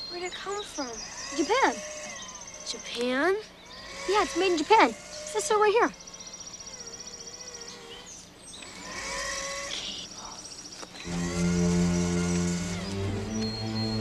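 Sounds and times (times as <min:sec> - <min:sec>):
fast high pulsing: 0:11.0 - 0:14.0
music of sustained low chords: 0:11.0 - 0:14.0.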